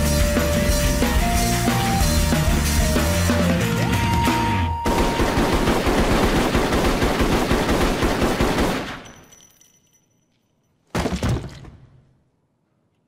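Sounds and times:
music: 0.0s - 5.2s
rapid automatic gunfire: 4.9s - 9.0s.

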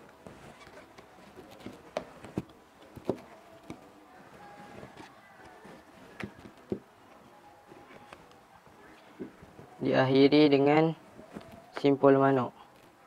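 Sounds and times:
rope handling: 0.0s - 8.4s.

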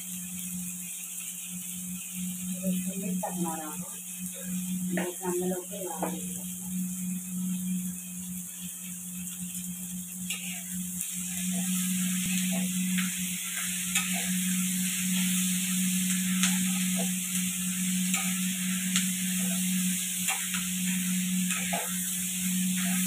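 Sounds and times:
onions frying with a hiss: 0.0s - 23.0s
metal spatula scraping a pan: 10.2s - 23.0s.

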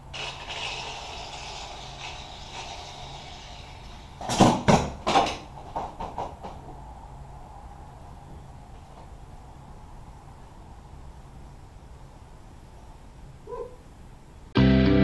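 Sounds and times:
hard knocks: 4.2s - 6.7s.

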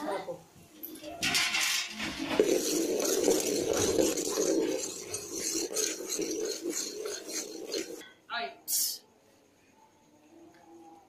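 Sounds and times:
spoon stirring: 1.9s - 8.0s
syrup bubbling and popping: 2.0s - 8.0s.

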